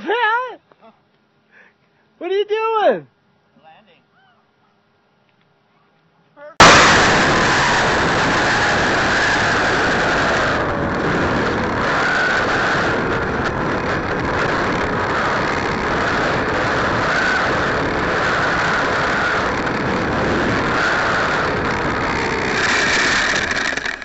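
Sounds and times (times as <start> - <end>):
electric motor whine: 6.6 - 24.0
rushing air noise: 6.6 - 24.0.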